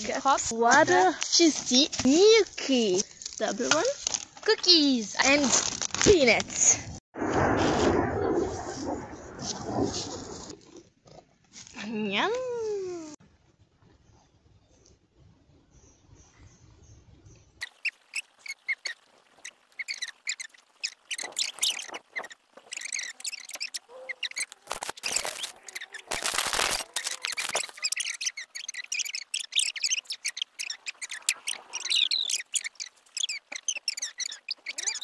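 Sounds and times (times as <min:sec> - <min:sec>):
gusts of rushing noise: 0:07.2 - 0:10.5
small birds chirping: 0:14.0 - 0:35.0.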